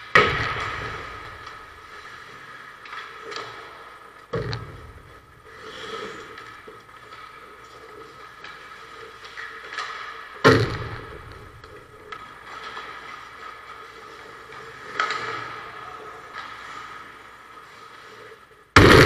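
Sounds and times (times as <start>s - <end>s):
skate blades scraping ice: 0.0s - 18.8s
puck slamming into boards: 0.1s - 1.7s, 9.9s - 11.6s, 18.8s - 19.0s.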